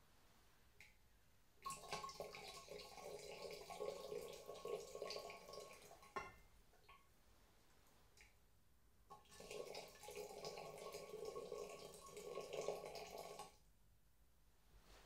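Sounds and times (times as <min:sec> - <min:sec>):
water trickling into a kettle: 0:01.6 - 0:07.0, 0:09.1 - 0:13.6.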